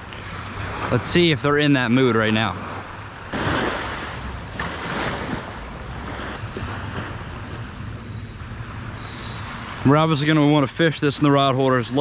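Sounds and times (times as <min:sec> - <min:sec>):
small waves washing on sand: 0:00.0 - 0:07.8.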